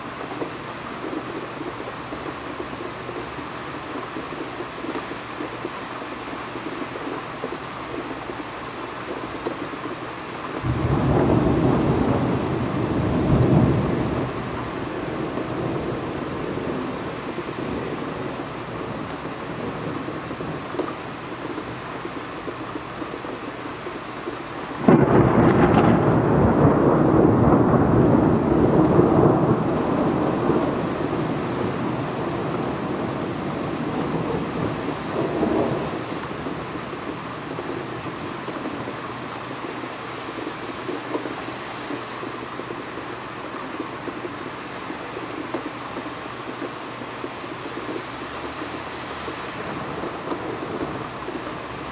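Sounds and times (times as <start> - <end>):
steady rain: 0.0 - 51.9
thunder rumbling: 10.6 - 23.3, 24.6 - 43.2, 49.2 - 51.9.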